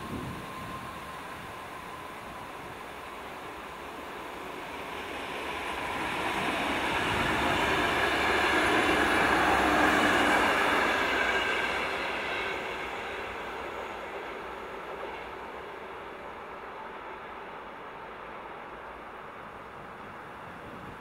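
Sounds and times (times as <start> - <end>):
train wheels rushing on rail: 0.0 - 21.0.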